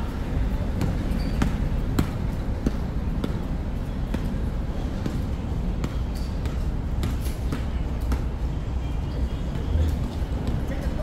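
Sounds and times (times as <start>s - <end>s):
basketballs bouncing on court: 0.1s - 8.5s.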